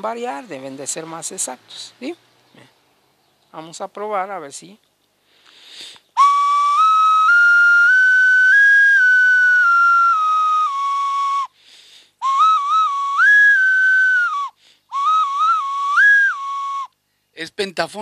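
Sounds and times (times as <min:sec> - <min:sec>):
clay whistle notes: 0:06.1 - 0:11.6, 0:12.2 - 0:17.0.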